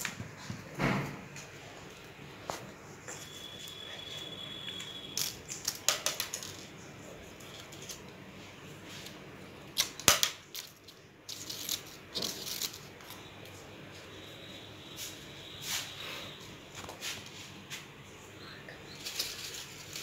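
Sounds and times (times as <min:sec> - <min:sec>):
stiff paper crackling and rustling: 0:19.0 - 0:20.0.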